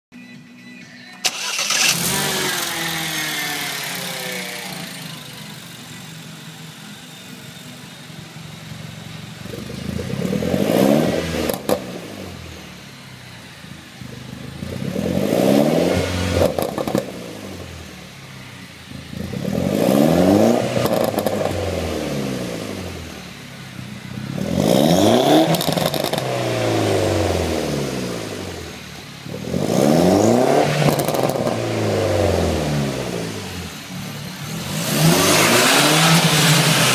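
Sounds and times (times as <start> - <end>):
car engine idling and revving: 1.2 - 36.9
exhaust crackles: 13.9 - 36.9.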